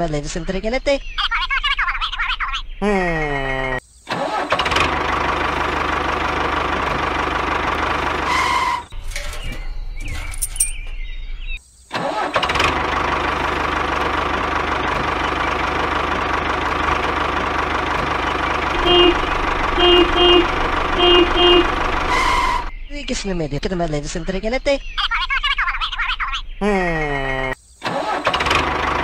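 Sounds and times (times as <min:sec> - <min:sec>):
tractor engine running: 0:04.5 - 0:11.1, 0:12.4 - 0:24.4, 0:27.0 - 0:29.0
short high tone: 0:18.8 - 0:22.7.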